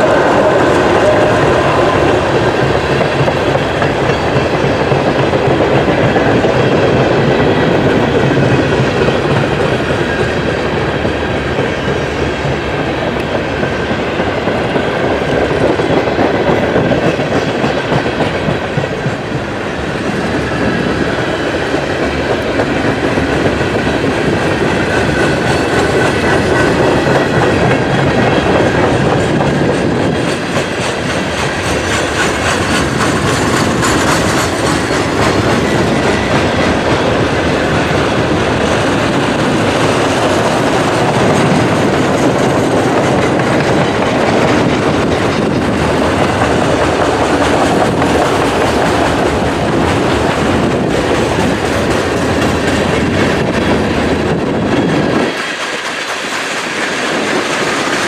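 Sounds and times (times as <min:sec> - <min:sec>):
freight train rumbling past: 0:00.0 - 0:58.0
steel wheels clattering over rail joints: 0:00.0 - 0:58.0.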